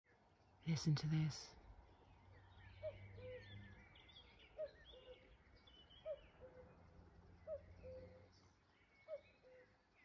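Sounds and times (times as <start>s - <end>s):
small birds twittering: 0.1s - 10.0s
cuckoo calling: 2.7s - 6.8s, 7.4s - 9.8s.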